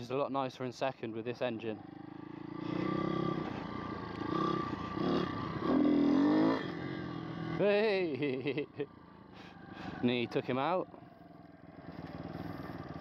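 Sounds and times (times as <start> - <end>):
motorbike engine revving: 1.8 - 10.3, 11.5 - 13.0.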